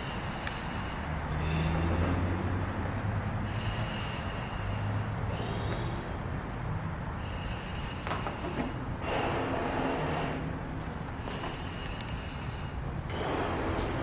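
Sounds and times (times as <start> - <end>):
hissing breaths drawn in: 0.0 - 14.0
breath puffs into balloon: 7.3 - 14.0.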